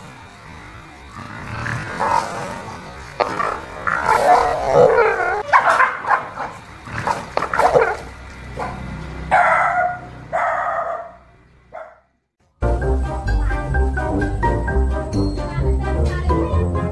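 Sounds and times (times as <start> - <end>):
dog barking and snarling: 1.0 - 11.2
dog crying: 4.0 - 6.0.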